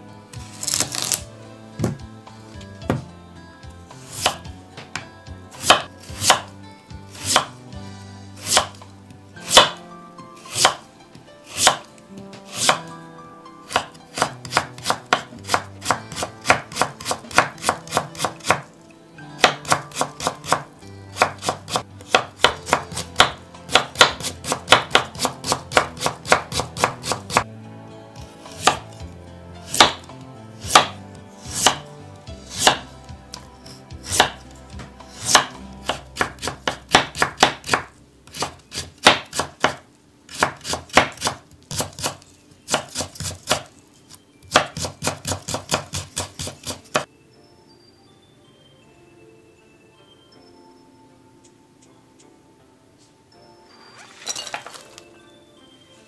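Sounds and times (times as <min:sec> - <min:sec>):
knife chopping on wooden board: 0:02.9 - 0:03.1, 0:04.0 - 0:06.5, 0:07.2 - 0:07.6, 0:08.4 - 0:08.8, 0:09.4 - 0:09.8, 0:10.5 - 0:10.8, 0:11.5 - 0:12.9, 0:13.7 - 0:18.7, 0:19.4 - 0:27.4, 0:28.5 - 0:28.9, 0:29.7 - 0:31.9, 0:32.5 - 0:33.4, 0:34.0 - 0:43.7, 0:44.5 - 0:47.1.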